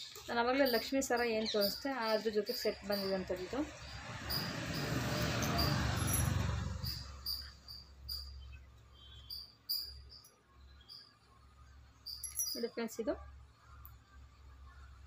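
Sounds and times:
high cricket-like chirp: 0.6 - 11.4, 12.0 - 12.7.

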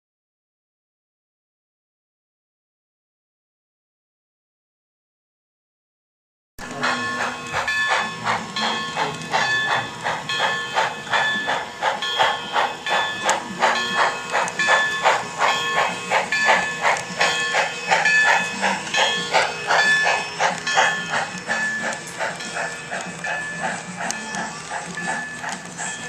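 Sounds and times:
steam locomotive chuffing: 6.6 - 26.0.

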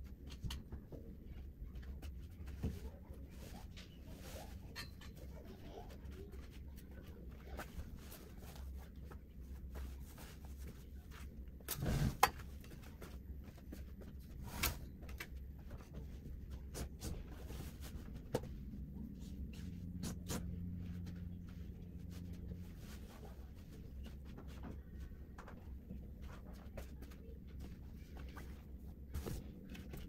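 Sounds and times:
low room hum: 0.0 - 30.0.

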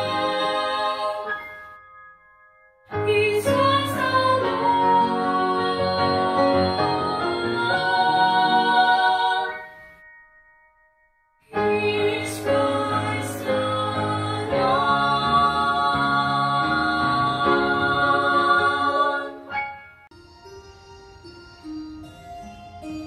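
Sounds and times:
female voices singing in harmony: 0.0 - 1.5, 3.0 - 9.7, 11.6 - 19.5.

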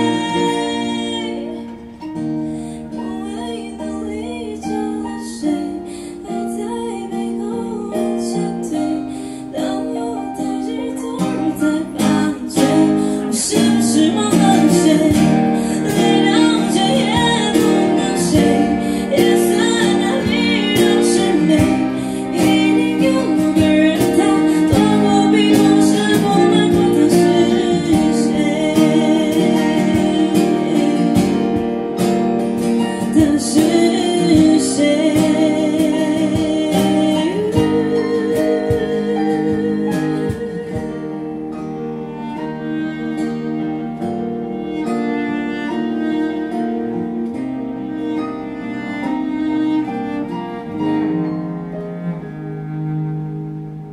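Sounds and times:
woman singing into microphone: 0.0 - 2.0, 2.7 - 43.6
cello playing: 0.0 - 53.9
strummed acoustic guitar: 0.0 - 53.9.

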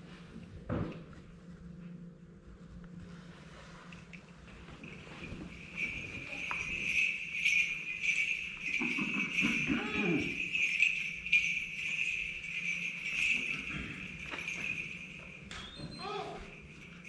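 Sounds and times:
small metal bells jingling: 4.2 - 17.0.

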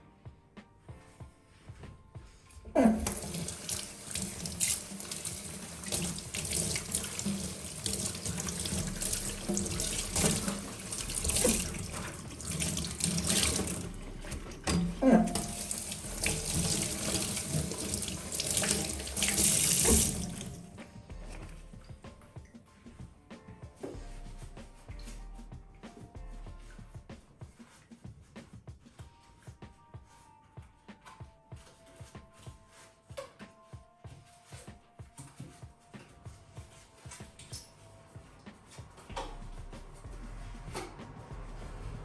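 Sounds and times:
cloth rinsed under water: 2.8 - 22.0
tap running into steel sink: 16.2 - 20.5.

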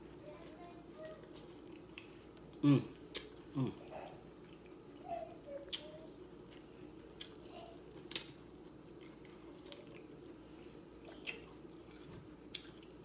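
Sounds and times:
person humming: 2.6 - 2.9, 3.6 - 3.9
wet chewing and biting clicks: 6.5 - 10.1, 11.1 - 13.0.

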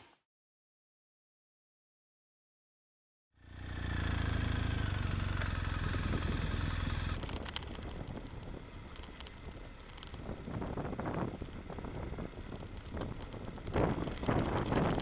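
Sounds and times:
motorcycle engine running: 3.4 - 15.0.

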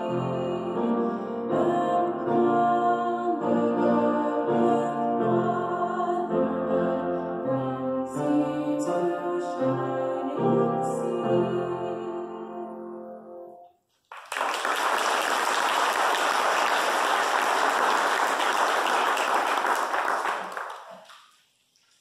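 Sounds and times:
song with piano: 0.0 - 13.7
congregation applauding: 13.9 - 21.4.

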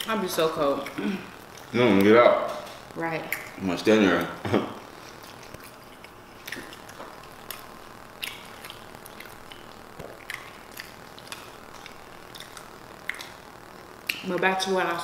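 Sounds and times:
person chewing food: 0.7 - 14.3.

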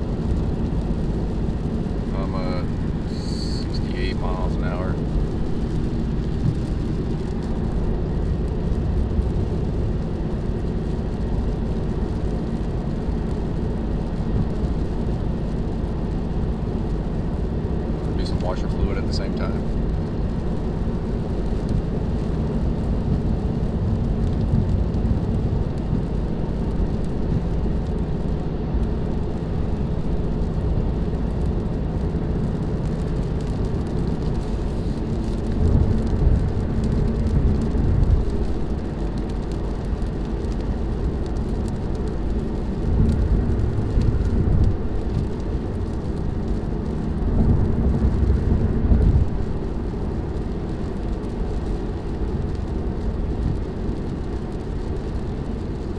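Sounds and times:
road and engine drone: 0.0 - 55.9
tyre hiss on wet road: 1.7 - 4.7, 34.3 - 35.3.

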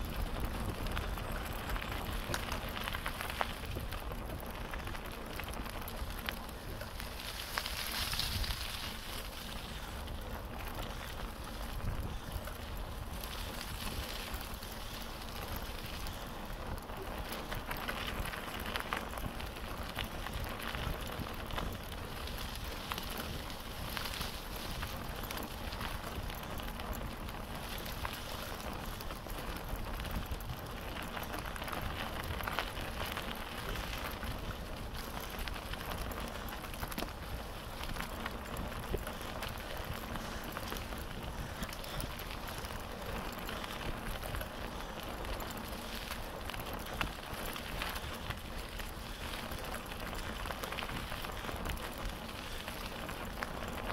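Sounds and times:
bicycle tyres crackling over leaves: 0.0 - 53.9.

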